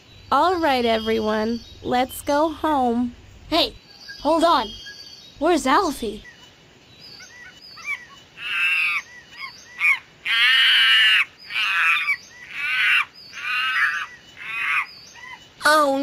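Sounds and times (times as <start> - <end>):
bird cawing: 7.1 - 15.4.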